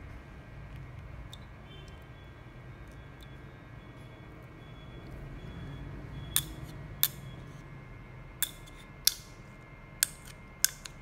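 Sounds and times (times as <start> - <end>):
screwdriver tip clicking on metal: 10.0 - 11.0.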